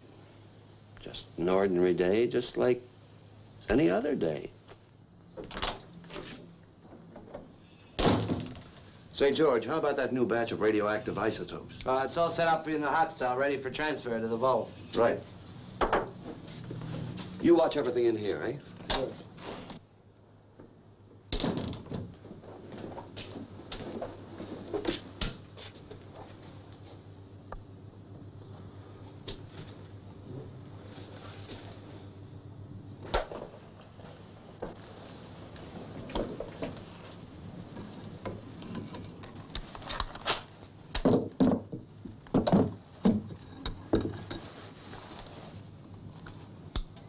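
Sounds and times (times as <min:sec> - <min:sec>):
door shutting with a thud: 0:08.0 - 0:08.6.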